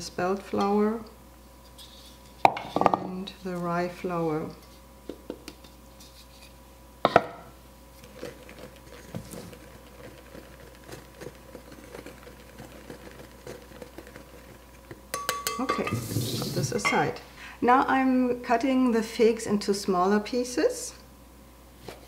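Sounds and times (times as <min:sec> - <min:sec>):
whisk scratching flour in bowl: 0:08.0 - 0:15.0.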